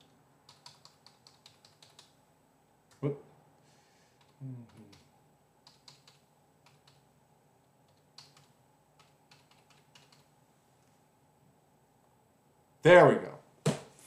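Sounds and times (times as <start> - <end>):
keyboard typing clicks: 0.4 - 2.2, 4.2 - 7.0, 7.9 - 10.3
short low vocal sound: 4.3 - 5.1.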